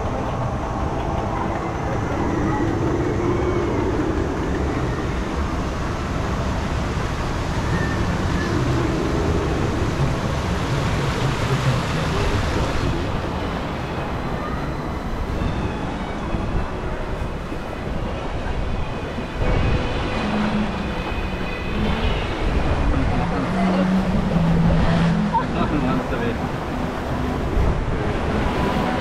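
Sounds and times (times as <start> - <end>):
low rumble: 0.0 - 13.2.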